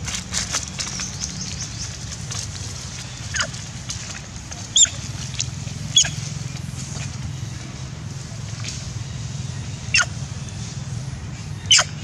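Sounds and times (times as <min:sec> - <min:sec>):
monkeys squealing: 0:05.9 - 0:06.2, 0:09.9 - 0:10.2, 0:11.7 - 0:12.0.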